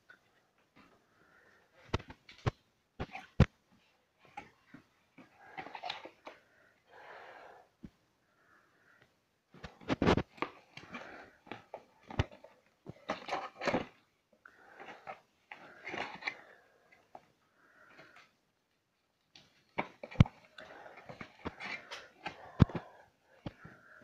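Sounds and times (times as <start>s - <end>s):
rustling and scraping: 0.3s - 6.5s, 9.5s - 18.4s, 19.3s - 24.0s.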